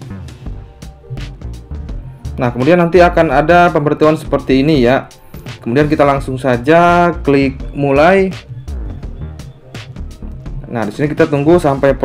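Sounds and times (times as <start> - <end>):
instrumental music with bass and drums: 0.0 - 12.0.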